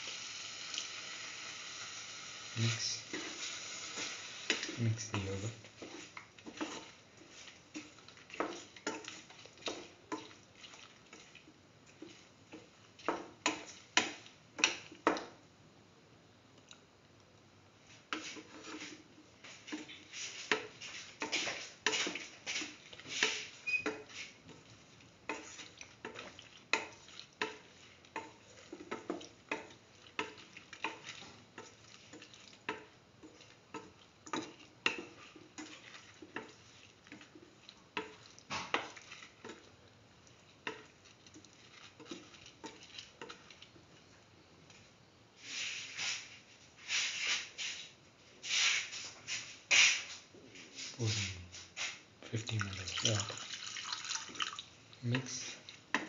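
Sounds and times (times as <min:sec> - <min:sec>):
spatula scraping a pan: 0:03.1 - 0:04.8, 0:05.8 - 0:14.8, 0:18.1 - 0:39.7, 0:40.6 - 0:43.6.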